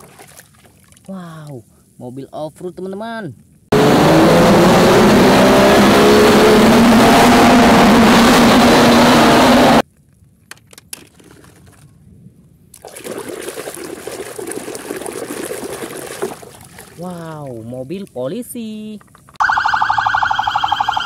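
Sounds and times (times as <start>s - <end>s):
water splashing around tyres: 0.0s - 1.1s, 12.7s - 17.8s
water sloshing in a basin: 0.0s - 1.3s, 12.7s - 19.4s
engine revving: 3.7s - 9.8s.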